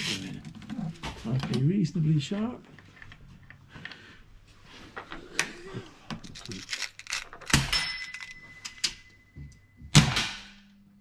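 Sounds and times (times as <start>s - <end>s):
air rifle shots: 10.0s - 10.6s.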